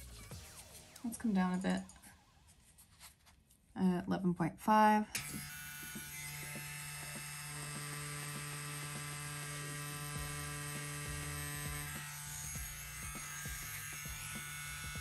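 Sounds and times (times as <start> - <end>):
tattoo pen electric hum: 5.1 - 15.0.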